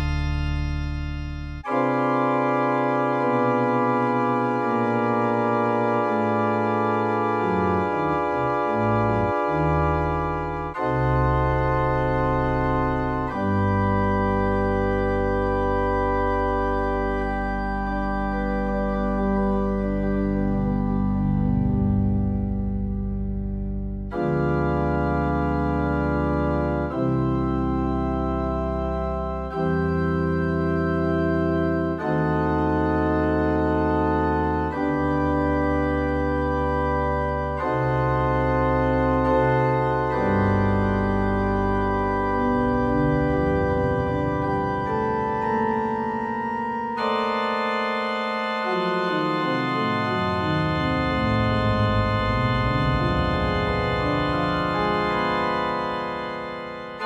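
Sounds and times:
electronic organ chords: 0.0 - 57.0.

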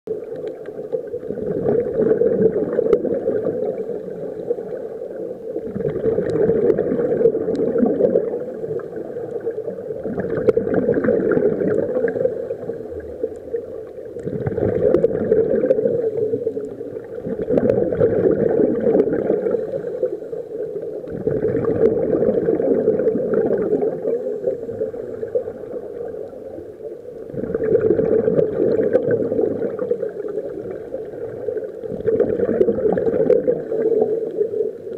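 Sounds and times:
underwater exhaled air bubbling: 0.1 - 34.9.

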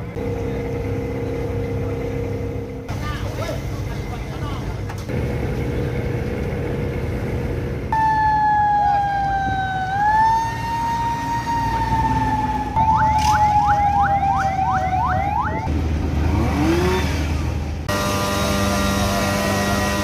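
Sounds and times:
fire truck siren: 7.9 - 15.7, 17.9 - 20.0.

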